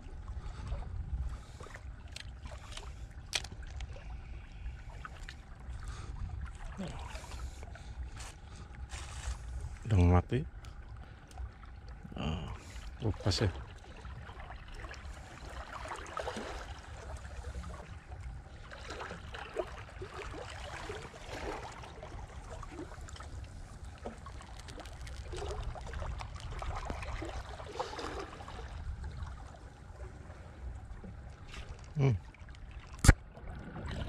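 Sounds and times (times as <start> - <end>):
steady low rumble: 0.0 - 15.8
water lapping and trickling: 0.0 - 34.0.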